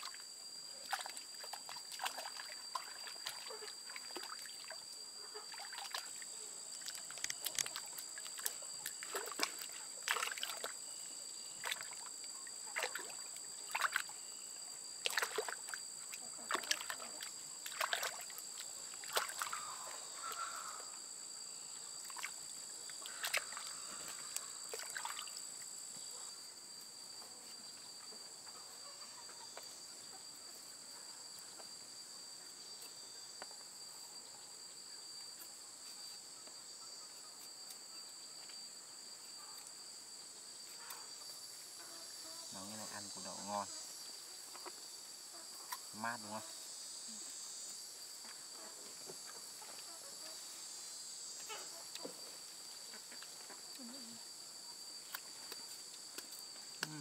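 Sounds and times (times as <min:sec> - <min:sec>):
insect drone: 0:00.0 - 0:57.0
water splashing: 0:00.8 - 0:04.8, 0:05.5 - 0:06.2, 0:06.8 - 0:10.8, 0:11.6 - 0:12.1, 0:12.7 - 0:14.1, 0:15.0 - 0:15.8, 0:16.5 - 0:18.4, 0:19.0 - 0:19.7, 0:24.7 - 0:25.4.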